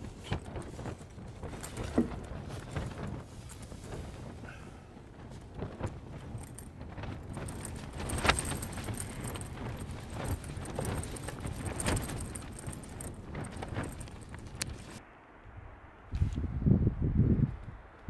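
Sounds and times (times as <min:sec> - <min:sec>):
gear knocking and clicking: 0:00.0 - 0:04.5, 0:05.1 - 0:15.0
tent rustling: 0:00.0 - 0:15.0.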